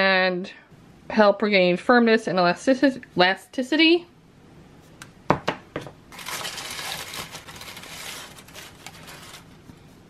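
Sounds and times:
hand rustling shredded paper: 0:06.1 - 0:09.8.

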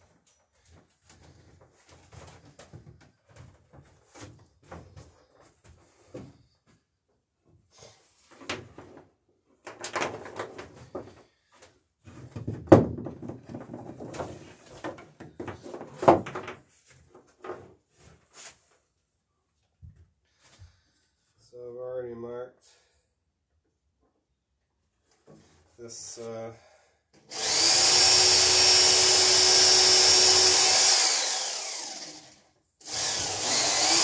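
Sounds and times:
tools and wood clattering: 0:08.2 - 0:18.3.

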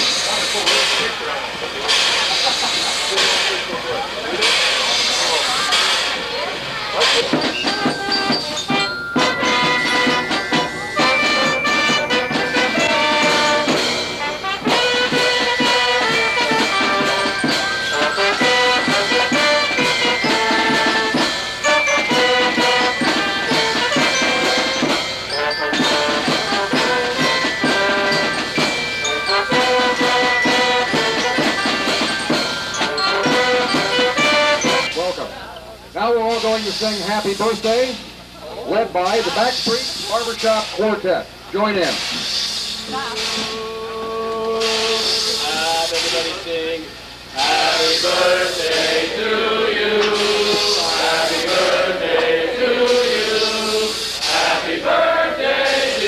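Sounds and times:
snare and bass drums beating: 0:07.0 - 0:35.0
horns playing melody: 0:07.9 - 0:35.2.

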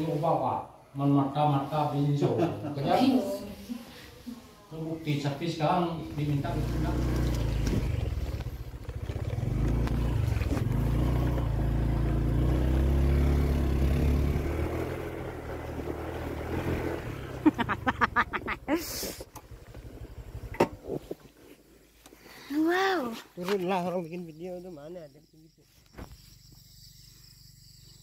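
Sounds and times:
small motorcycle engine: 0:05.9 - 0:21.6.

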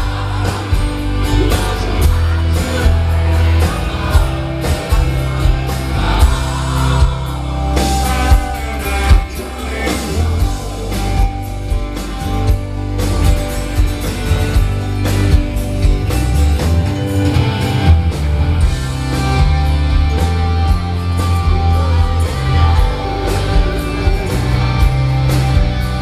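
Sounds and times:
man singing lead vocal: 0:00.0 - 0:12.4, 0:21.4 - 0:24.8
bass guitar: 0:00.0 - 0:26.0
drums: 0:00.0 - 0:26.0
electric guitars: 0:00.0 - 0:26.0
keyboard: 0:00.0 - 0:26.0.

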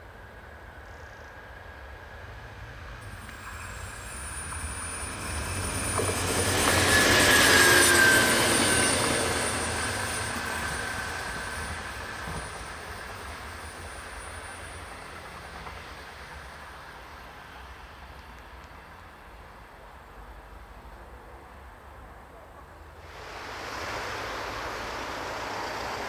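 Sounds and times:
train engine: 0:00.0 - 0:26.0
train wheels on rails: 0:00.3 - 0:21.9, 0:22.6 - 0:26.0
high wheel squeal: 0:03.1 - 0:16.6.

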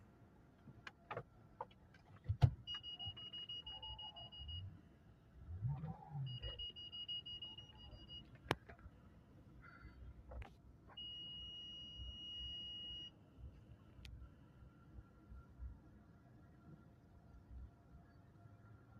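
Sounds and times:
car warning beeps: 0:02.6 - 0:04.8, 0:05.5 - 0:08.6, 0:10.9 - 0:13.2
faint low rumble: 0:03.4 - 0:10.7.

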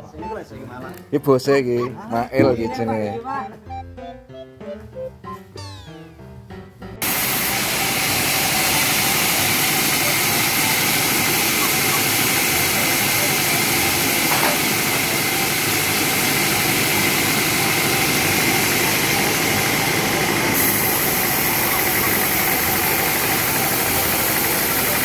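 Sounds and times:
sawmill saw running: 0:07.0 - 0:25.0.

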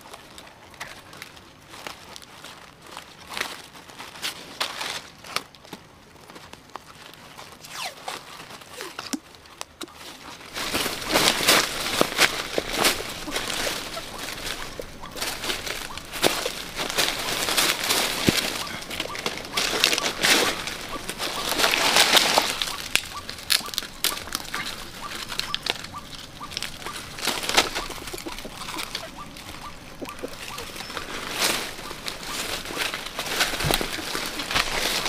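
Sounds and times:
dry leaves rustling and crackling: 0:00.0 - 0:35.0
twigs snapping: 0:08.9 - 0:35.0.

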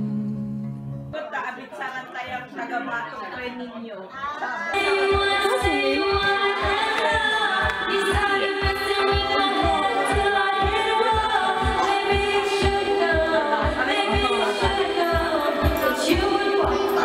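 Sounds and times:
backing track with steady beat: 0:04.7 - 0:17.0
woman singing into a microphone: 0:04.8 - 0:17.0.

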